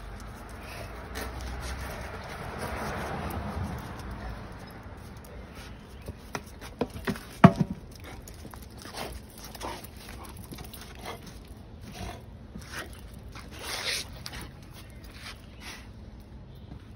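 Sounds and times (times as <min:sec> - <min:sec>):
tyre knocking on concrete: 0:06.3 - 0:07.8.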